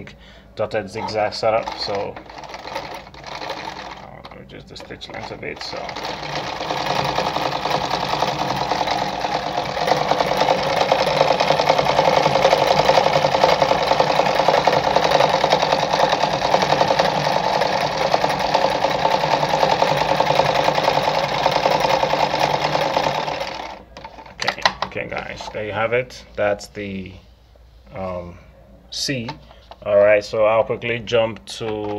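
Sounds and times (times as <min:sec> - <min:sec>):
sewing machine stitching: 0:01.0 - 0:25.3.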